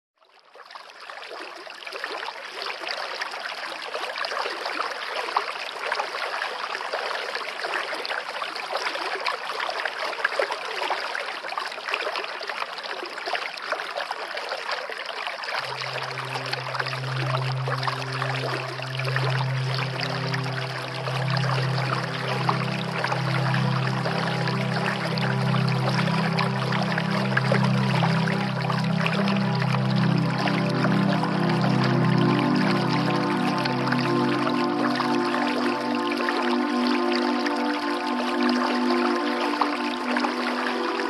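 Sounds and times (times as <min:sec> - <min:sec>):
running water trickling: 0:00.5 - 0:41.0
low musical drone: 0:15.6 - 0:41.0.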